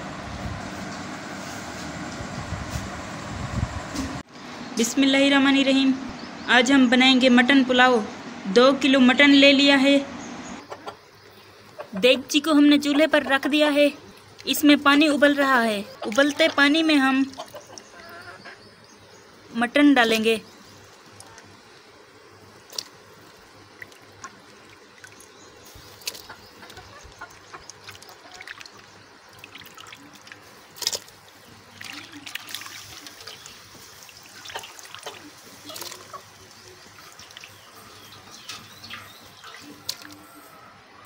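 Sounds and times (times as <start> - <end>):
water boiling in a pot: 20.6 - 40.3
meat splashing into water: 23.8 - 36.2.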